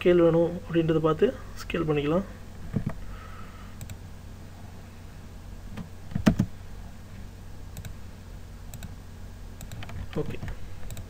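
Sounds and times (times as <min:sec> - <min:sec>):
low steady hum: 0:00.0 - 0:11.0
keyboard keystrokes: 0:05.8 - 0:06.5, 0:09.6 - 0:11.0.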